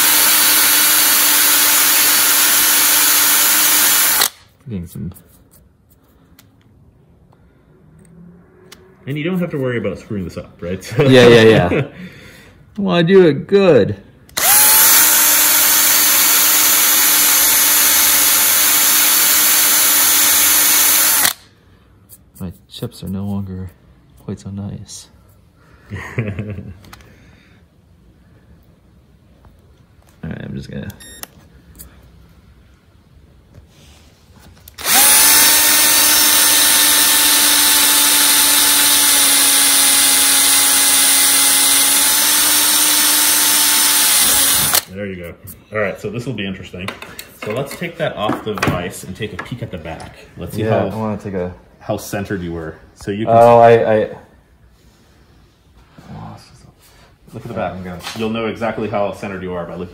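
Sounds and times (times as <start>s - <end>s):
electric drill drilling metal: 0.0s - 4.4s, 14.4s - 21.4s, 34.8s - 44.9s.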